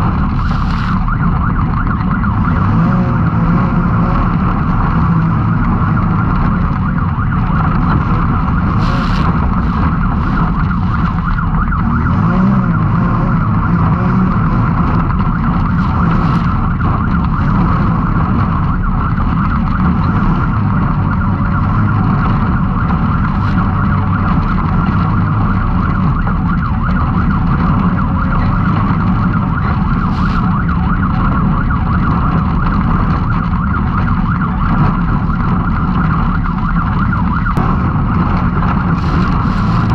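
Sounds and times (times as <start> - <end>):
engine running under load: 0.0 - 39.9.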